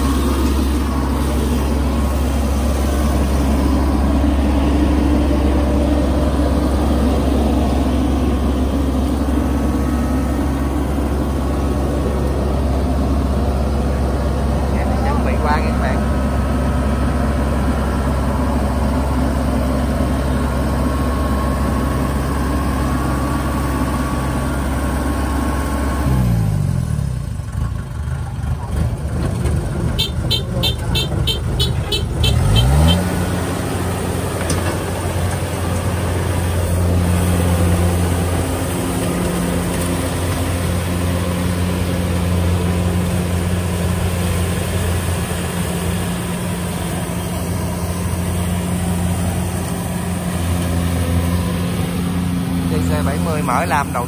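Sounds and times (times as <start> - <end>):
combine harvester diesel engine: 0.0 - 54.0.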